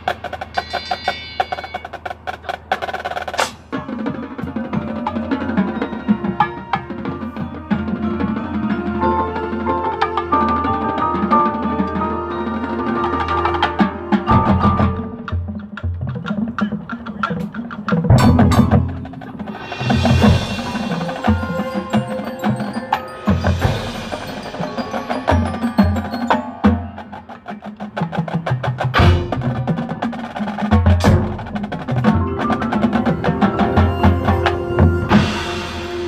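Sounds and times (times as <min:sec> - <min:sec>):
marching drums: 0:00.0 - 0:36.0
mallet keyboards ringing: 0:20.3 - 0:27.8, 0:31.9 - 0:35.7.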